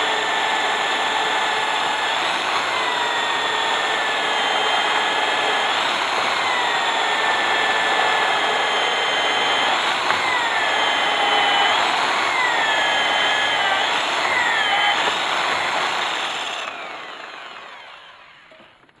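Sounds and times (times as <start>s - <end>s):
core drill grinding into stone: 0.0s - 18.9s.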